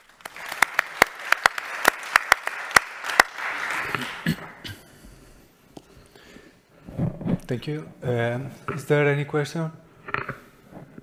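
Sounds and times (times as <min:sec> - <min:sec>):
audience applauding: 0:00.0 - 0:04.7.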